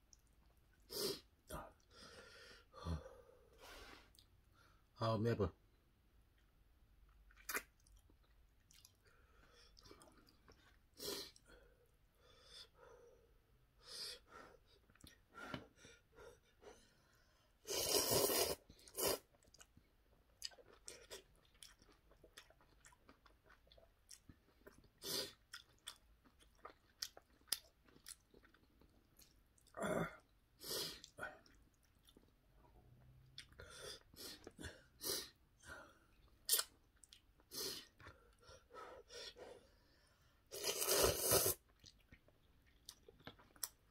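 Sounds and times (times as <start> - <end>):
person chewing and slurping noodles: 7.2 - 11.6, 17.6 - 29.9, 30.6 - 39.7, 40.4 - 43.9.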